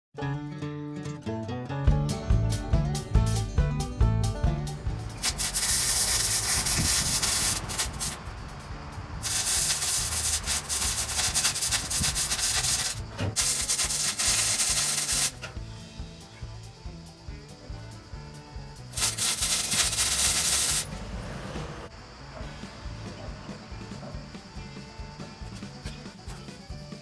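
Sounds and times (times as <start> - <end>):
background music with beat: 1.8 - 7.8, 9.3 - 20.9, 22.8 - 27.0
arc welding crackling sizzle: 5.1 - 15.6, 18.8 - 20.9.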